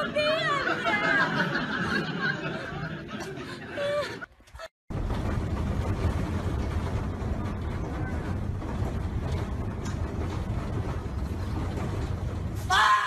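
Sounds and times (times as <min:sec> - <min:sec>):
bus rumble and road noise: 0:04.3 - 0:13.0.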